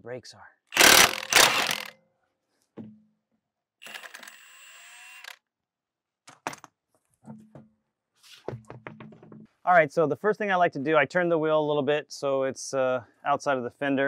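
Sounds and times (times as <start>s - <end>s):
sharp metallic clicks: 0.7s - 1.9s
impact wrench hammering: 0.8s - 1.9s
impact wrench spinning with whine: 0.8s - 1.9s, 3.8s - 5.4s.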